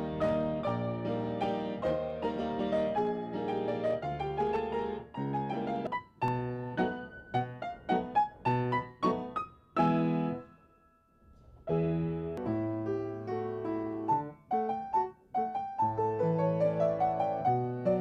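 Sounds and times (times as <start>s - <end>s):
solo piano playing chords: 0.0s - 11.1s, 11.7s - 18.0s.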